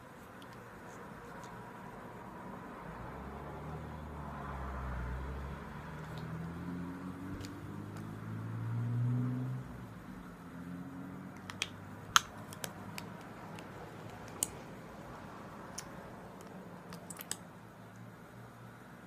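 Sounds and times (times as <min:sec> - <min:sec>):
lipstick tubes and caps clicking: 0:11.3 - 0:14.6, 0:15.7 - 0:17.4.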